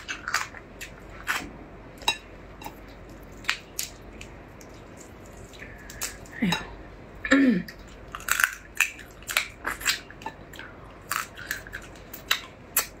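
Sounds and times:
crab shell crunching: 8.0s - 13.0s.

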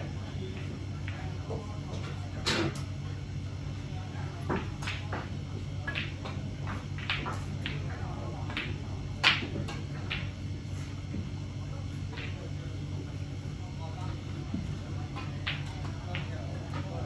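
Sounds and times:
low room hum: 0.0s - 17.0s
snooker balls clicking: 4.5s - 10.4s, 12.1s - 12.5s, 15.1s - 17.0s.

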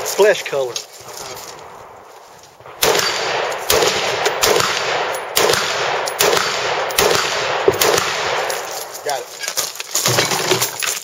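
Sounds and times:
rifle shots echoing: 1.6s - 9.1s.

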